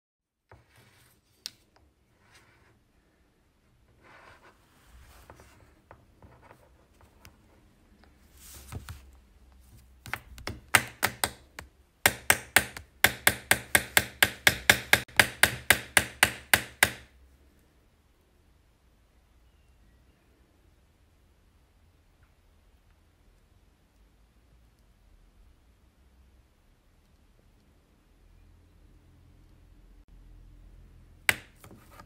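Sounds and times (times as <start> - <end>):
faint scratching and rustling: 3.8 - 10.1
pen tapping on desk: 10.0 - 17.1, 31.3 - 32.0.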